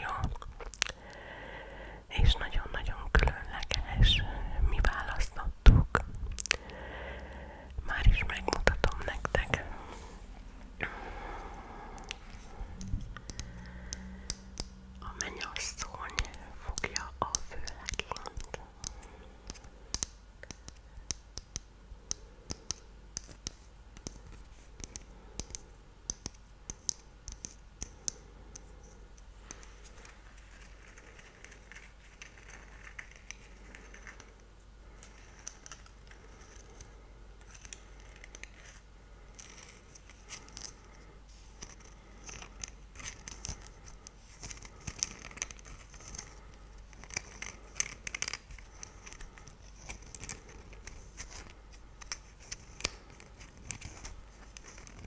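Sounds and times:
soft scratching: 7.8 - 10.7, 28.6 - 55.0.

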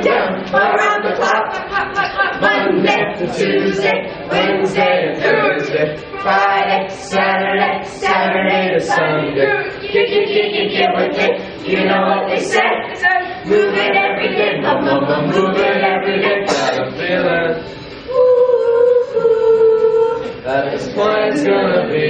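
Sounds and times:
children singing unaccompanied: 0.0 - 17.6.

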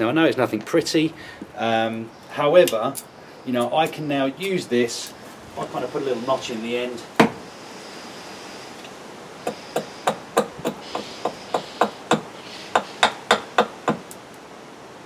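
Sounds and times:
hatchet chopping wooden stick: 9.4 - 14.2.

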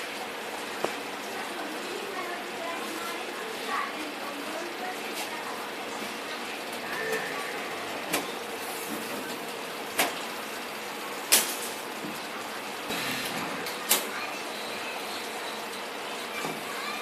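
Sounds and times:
filling machine humming: 5.4 - 17.0.

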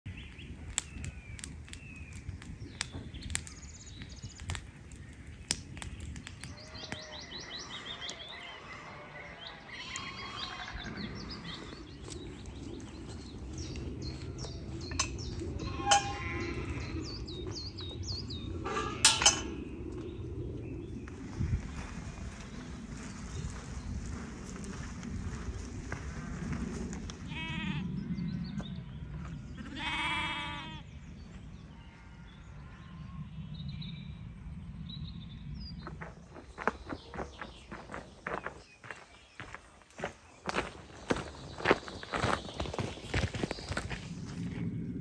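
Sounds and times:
campfire crackling: 0.1 - 8.3, 11.2 - 27.3
birds singing and chirping: 0.1 - 45.0
low wind rumble: 0.1 - 45.0.

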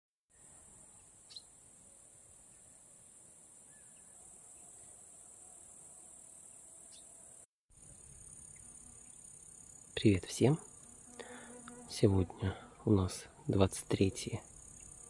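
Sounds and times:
insects chirring: 3.7 - 12.6, 13.7 - 15.0.

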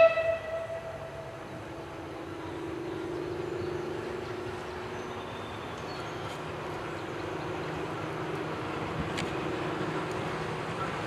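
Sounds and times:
distant steam locomotive rumble: 0.0 - 11.0.

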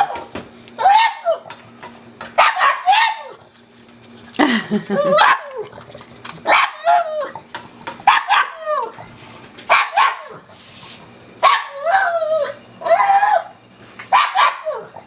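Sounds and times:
dog barking and yelping: 0.8 - 1.5, 2.4 - 3.4, 4.9 - 5.7, 6.4 - 7.4, 8.0 - 9.0, 9.7 - 10.4, 11.4 - 15.0.

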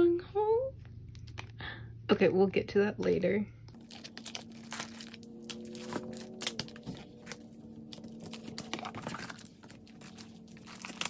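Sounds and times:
packaging being handled: 3.8 - 11.0.

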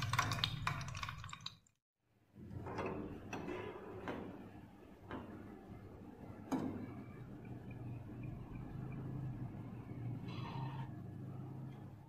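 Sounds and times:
fizzing crackle in chemical bath: 0.0 - 1.8.

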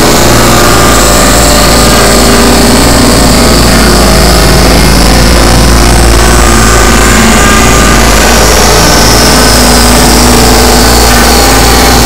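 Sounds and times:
noise drone music: 0.0 - 12.0.

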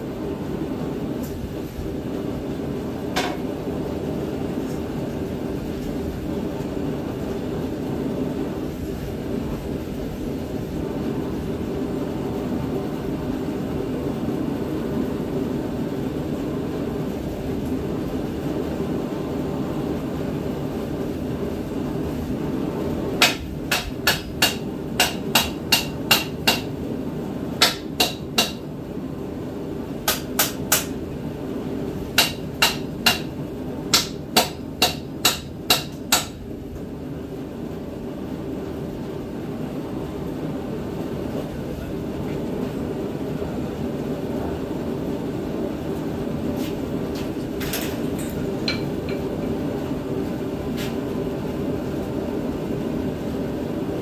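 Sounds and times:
steady hum: 0.0 - 54.0
hammer ringing on hot steel: 23.2 - 26.7.

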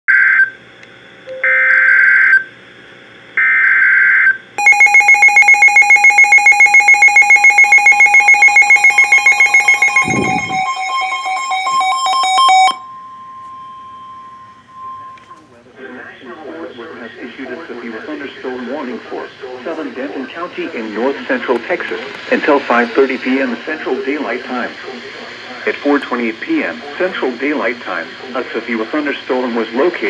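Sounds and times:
steady warning alarm tone: 3.4 - 15.6
harsh buzzing data bursts: 4.6 - 10.7
alarm beeping rapidly: 4.6 - 15.4.

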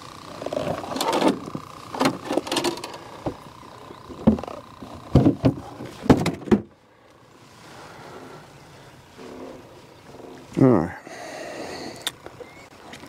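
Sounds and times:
fish thumping on metal boat deck: 4.2 - 6.7.

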